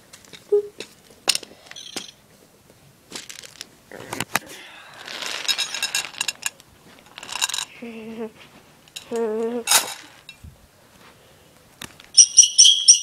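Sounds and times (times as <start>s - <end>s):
rustling and clinking: 0.0s - 2.5s, 3.1s - 4.4s, 5.0s - 7.7s, 8.8s - 10.4s.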